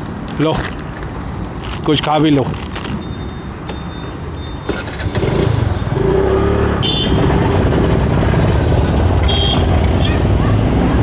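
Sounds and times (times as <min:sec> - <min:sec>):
road noise: 0:00.0 - 0:11.0
motorcycle engine: 0:04.7 - 0:11.0.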